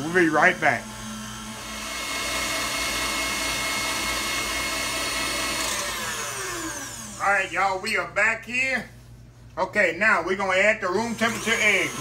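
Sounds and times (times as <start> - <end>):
motor winding down: 0.0 - 7.4, 11.1 - 12.0
stand mixer motor whine: 0.0 - 7.5, 11.0 - 12.0.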